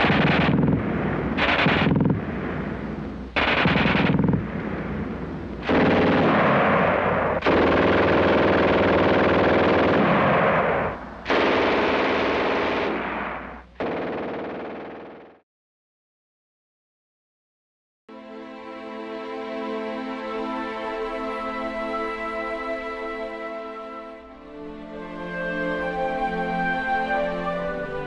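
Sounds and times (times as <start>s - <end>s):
machine-gun fire bursts: 0.0s - 2.8s, 3.4s - 15.4s.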